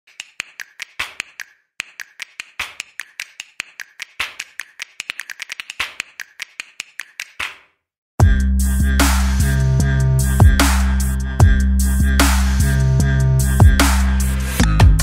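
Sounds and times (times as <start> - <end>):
rapid sharp clicks: 0.1 - 7.6
electronic music with heavy bass: 8.2 - 15.0.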